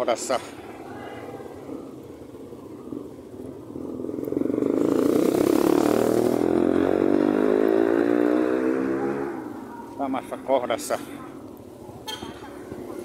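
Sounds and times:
vehicle engine passing by: 0:01.6 - 0:09.7.

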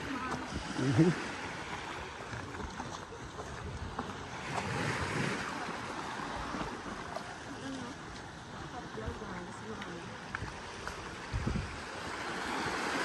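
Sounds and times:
wind buffeting microphone: 0:10.3 - 0:13.0.

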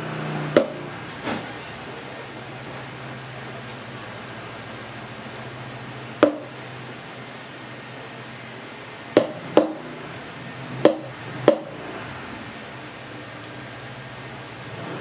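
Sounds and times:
hard objects knocking on countertop: 0:06.2 - 0:06.5, 0:09.2 - 0:09.8.

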